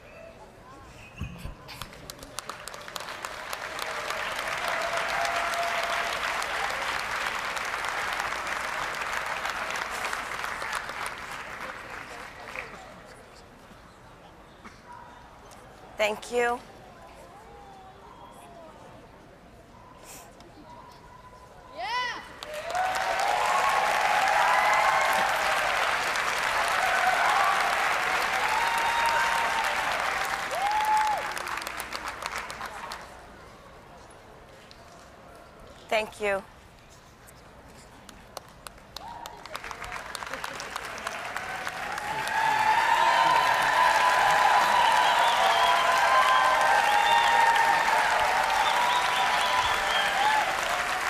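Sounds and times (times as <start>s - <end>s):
audience applauding: 1.8s - 12.8s, 22.4s - 33.2s, 38.7s - 51.0s
cheers: 2.5s - 10.8s, 21.8s - 33.0s, 39.0s - 51.0s.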